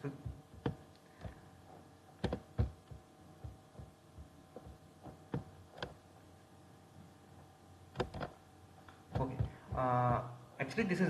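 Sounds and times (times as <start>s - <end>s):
low electrical hum: 0.0s - 11.0s
mouse and keyboard clicks: 2.2s - 2.7s, 8.0s - 8.4s.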